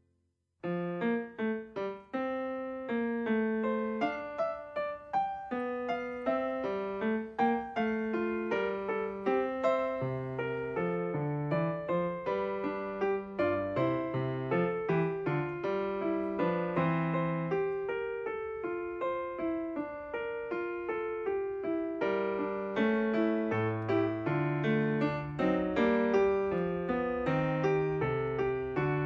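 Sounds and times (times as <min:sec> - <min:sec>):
piano music: 0:00.6 - 0:29.0.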